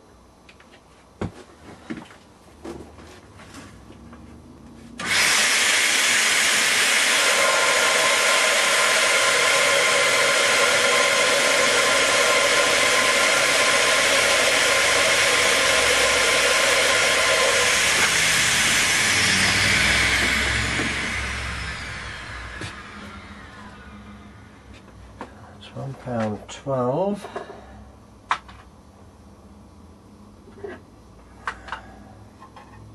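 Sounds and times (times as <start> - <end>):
vacuum cleaner running: 4.9 - 25.3.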